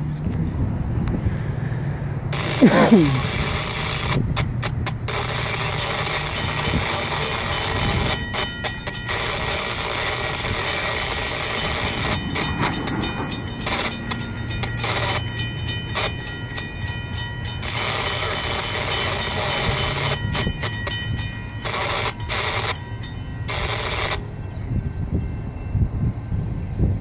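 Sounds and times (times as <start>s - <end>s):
freight train rumbling: 0.0s - 27.0s
train horn blasts: 5.1s - 25.3s.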